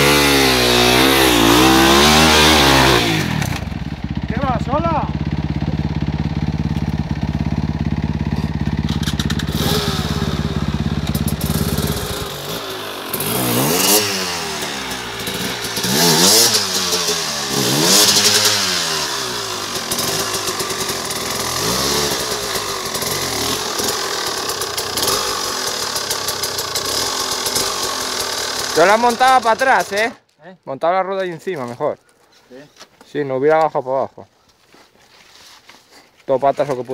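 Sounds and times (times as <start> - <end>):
motorcycle engine revving: 0.0 - 30.2.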